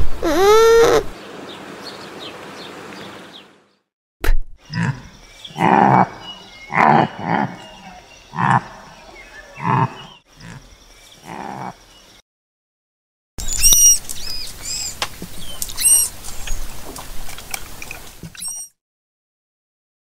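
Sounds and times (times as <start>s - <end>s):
pronghorn short calls: 0.0s - 1.1s
manatee squeaky underwater chirps: 13.4s - 15.0s, 15.7s - 16.1s, 18.4s - 18.8s.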